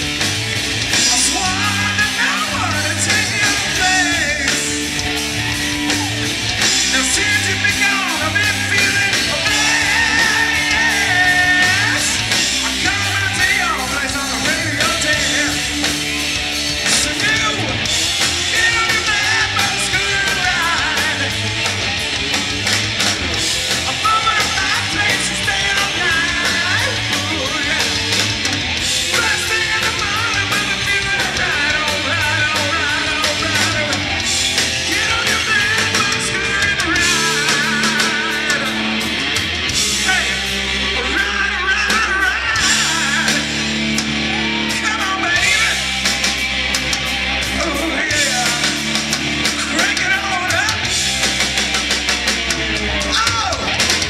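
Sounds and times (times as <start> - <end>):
live hard rock band: 0.0 - 54.0
person singing: 1.0 - 5.0, 6.7 - 16.0, 23.9 - 28.2, 34.8 - 38.8.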